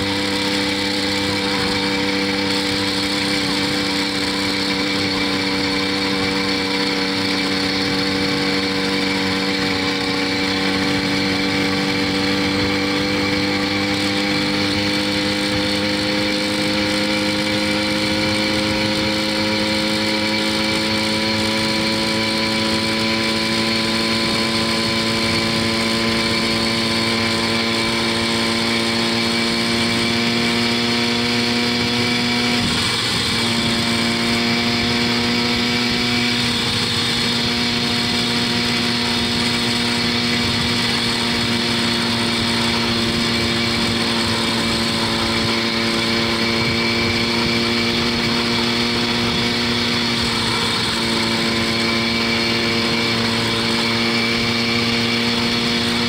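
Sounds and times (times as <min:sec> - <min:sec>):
two-stroke engine running flat out: 0:00.0 - 0:56.0.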